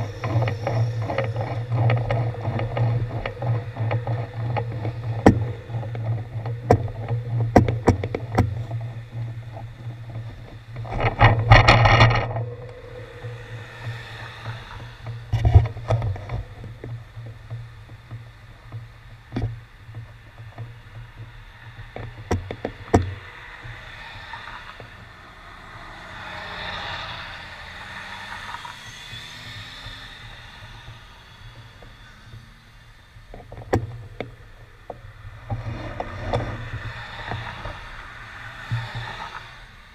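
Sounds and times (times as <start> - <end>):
clicks and knocks: 0.0 - 20.7
low engine hum: 0.0 - 39.9
car passing by: 12.4 - 15.4, 23.2 - 33.0, 35.2 - 39.9.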